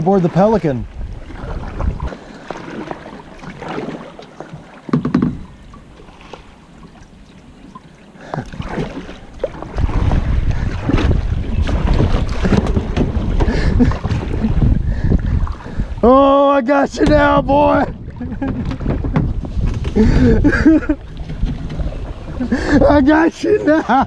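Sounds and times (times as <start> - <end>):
paddle splashing in water: 0.0 - 16.1, 16.7 - 23.6
wind rumble on microphone: 0.5 - 2.2, 8.4 - 24.0.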